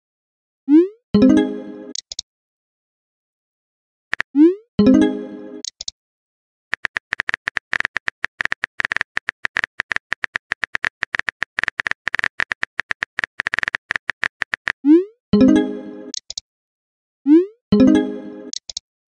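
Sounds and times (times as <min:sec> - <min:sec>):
phone keyboard typing clicks: 0:06.7 - 0:14.8, 0:16.1 - 0:16.4, 0:18.5 - 0:18.8.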